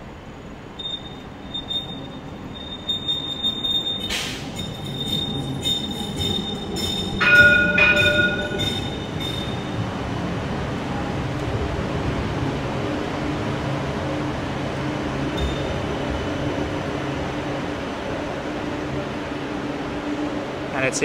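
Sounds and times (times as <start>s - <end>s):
warning bell ringing: 0.8s - 9.8s
tram wheels squealing: 0.8s - 10.2s, 15.2s - 17.4s.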